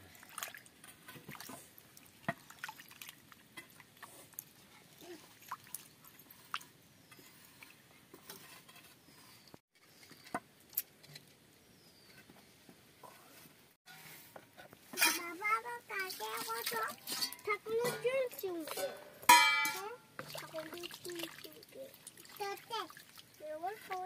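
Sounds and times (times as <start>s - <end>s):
water sloshing and dripping: 0.0s - 8.7s, 14.8s - 24.0s.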